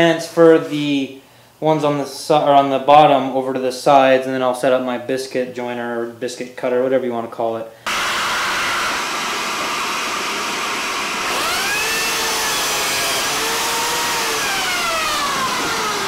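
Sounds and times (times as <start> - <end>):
motor whine: 7.9 - 16.0
power tool with dust extraction: 7.9 - 16.0.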